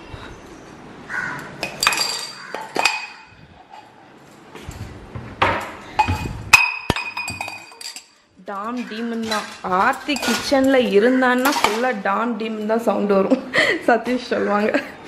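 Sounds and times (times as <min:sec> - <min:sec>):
steel vessels clinking: 0:01.6 - 0:03.9, 0:06.0 - 0:12.0.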